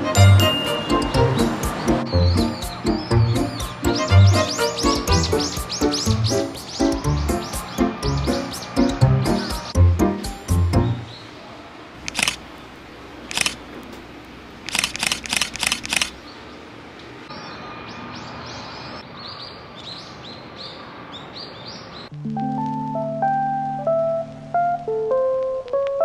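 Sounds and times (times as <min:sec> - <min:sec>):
steady outdoor background: 0:00.0 - 0:26.0
small birds chirping: 0:01.1 - 0:09.8, 0:14.7 - 0:22.1
smartphone camera shutter clicks: 0:12.0 - 0:12.4, 0:13.3 - 0:13.6, 0:14.7 - 0:16.2.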